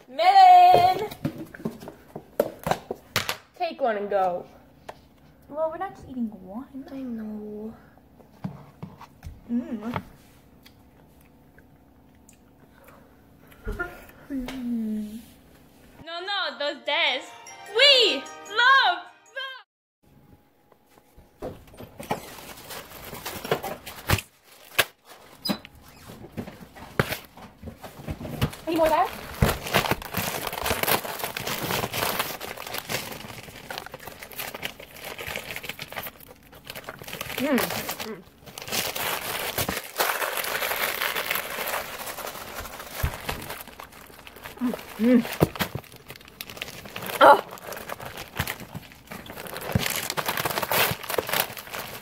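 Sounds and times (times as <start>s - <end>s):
plastic zip bag crinkling: 28.6s - 52.0s.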